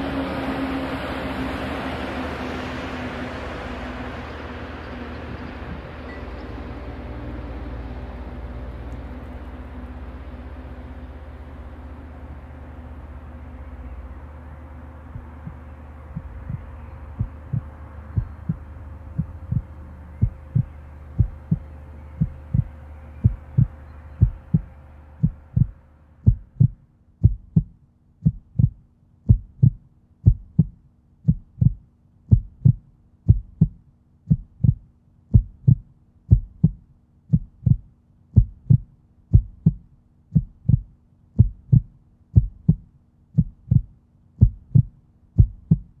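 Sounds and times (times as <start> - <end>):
low steady hum: 0.0 - 46.0
low heartbeat-like pulse: 5.2 - 6.0, 15.0 - 46.0.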